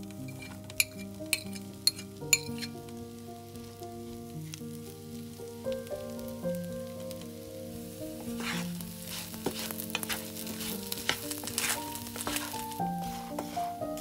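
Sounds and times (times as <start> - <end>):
spatula scraping a pan: 0.0 - 2.8, 8.2 - 14.0
bread sizzling in hot oil: 0.0 - 14.0
soft background music: 0.0 - 14.0.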